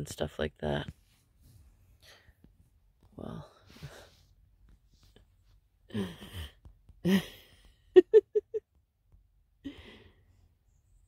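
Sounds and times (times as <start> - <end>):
woman laughing: 5.9 - 8.7.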